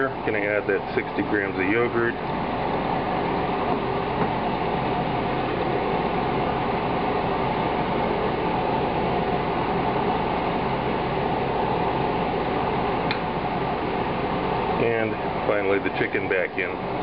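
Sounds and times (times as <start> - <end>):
whirring fan hum with hiss: 0.0 - 17.0.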